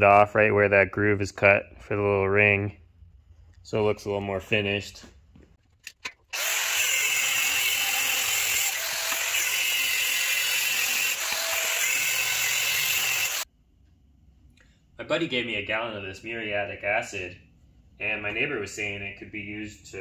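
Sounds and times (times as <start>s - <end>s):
angle grinder cutting metal: 6.3s - 13.5s.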